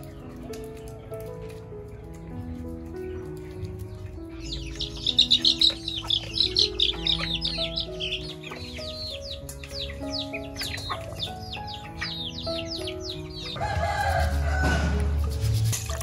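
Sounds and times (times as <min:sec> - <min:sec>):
background music with held notes: 0:00.0 - 0:16.0
chicks peeping: 0:00.0 - 0:16.0.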